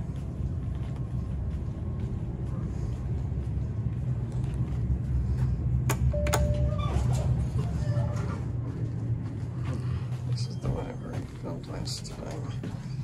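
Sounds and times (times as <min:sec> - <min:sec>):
low rumble of handling: 0:00.0 - 0:13.0
short beep: 0:06.1 - 0:06.9.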